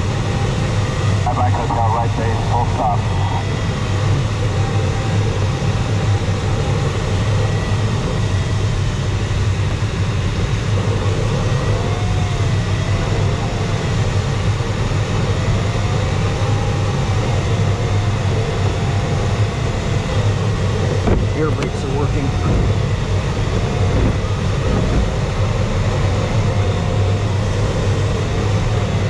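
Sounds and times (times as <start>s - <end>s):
wavering electronic variometer tone: 0.0s - 29.0s
wind rushing over glider canopy: 18.3s - 29.0s.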